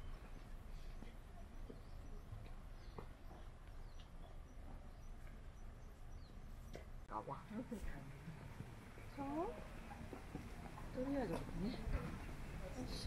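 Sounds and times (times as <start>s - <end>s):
faint bird chirps: 0.0s - 8.0s.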